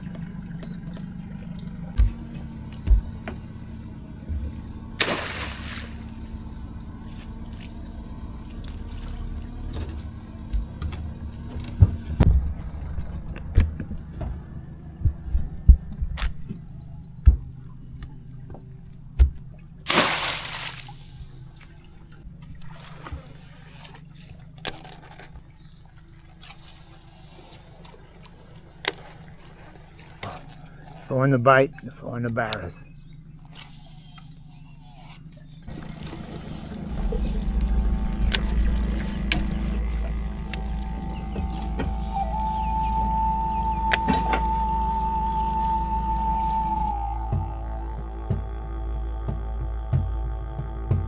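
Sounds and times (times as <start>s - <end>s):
boat motor hum: 0.0s - 51.0s
water sounds: 0.0s - 51.0s.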